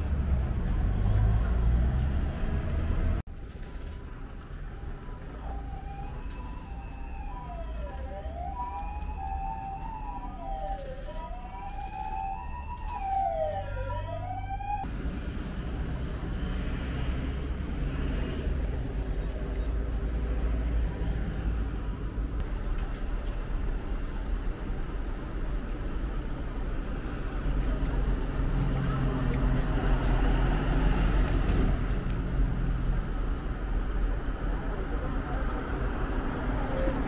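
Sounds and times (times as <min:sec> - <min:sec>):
siren wailing: 0:05.0 - 0:14.9.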